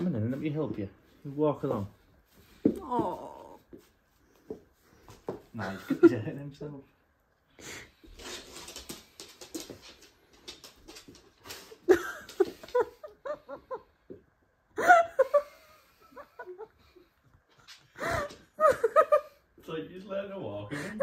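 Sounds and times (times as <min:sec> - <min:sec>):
dog paws tapping on hard floor: 0:07.9 - 0:14.3.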